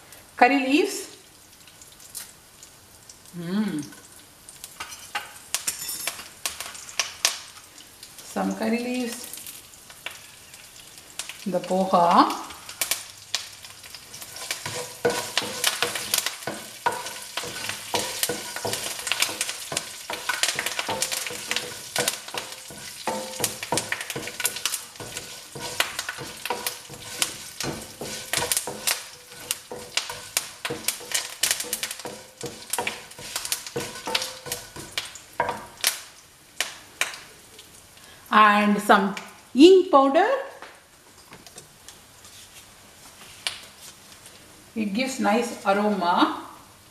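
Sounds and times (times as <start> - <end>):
seeds sizzling in hot oil: 0.0 - 38.6
spatula scraping pan: 14.1 - 35.8.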